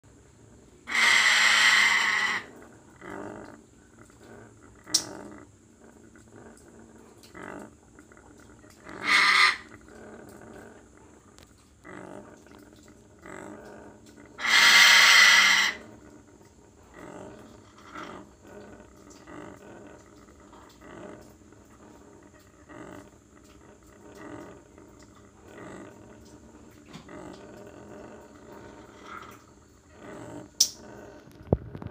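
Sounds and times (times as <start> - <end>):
parrot growling: 0.8 - 31.9
parrot grumbling: 0.9 - 3.4, 8.8 - 10.8, 14.3 - 15.9.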